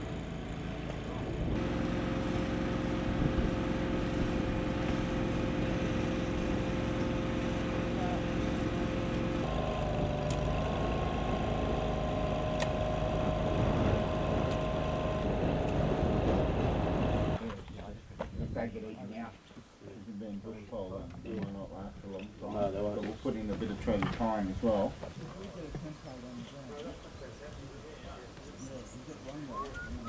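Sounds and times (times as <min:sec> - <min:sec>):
small engine running: 0:00.0 - 0:17.4.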